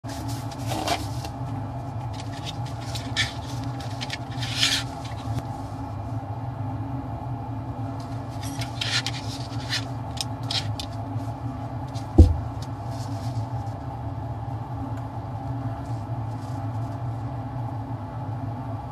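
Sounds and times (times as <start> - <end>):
fume hood fan hum: 0.0 - 18.9
dull thump: 12.1 - 12.6.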